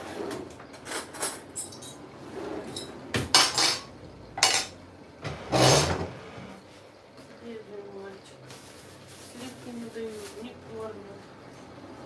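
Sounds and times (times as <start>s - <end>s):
cutlery clinking against a dish: 3.4s - 4.8s.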